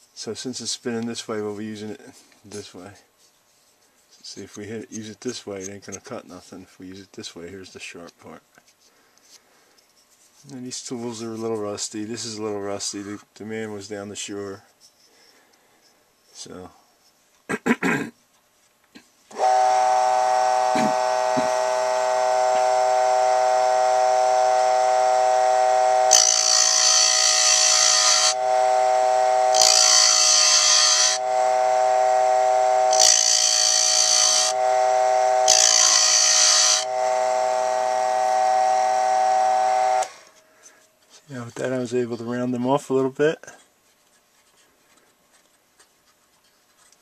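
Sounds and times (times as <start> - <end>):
small electric motor whining: 19.3 - 40.5
gouge scraping spinning wood: 19.4 - 38.5.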